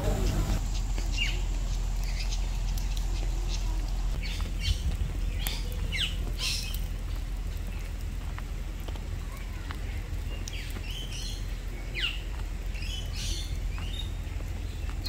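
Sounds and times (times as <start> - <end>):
birds squawking: 0.0 - 4.8, 5.4 - 6.8
steady deep rumble: 0.0 - 15.0.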